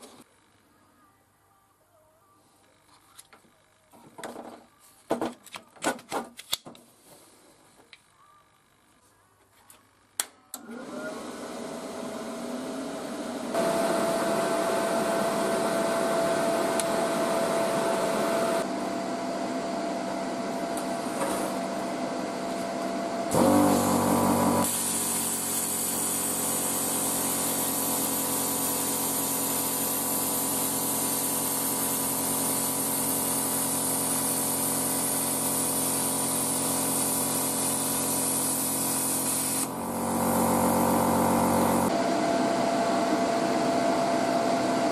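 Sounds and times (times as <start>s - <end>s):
plasma torch cutting hiss: 23.3s - 41.9s.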